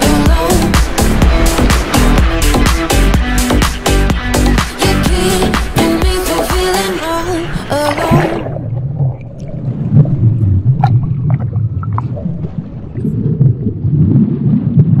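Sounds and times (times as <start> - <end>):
muffled churning water underwater: 0.0 - 15.0
bubbles gurgling: 7.2 - 15.0.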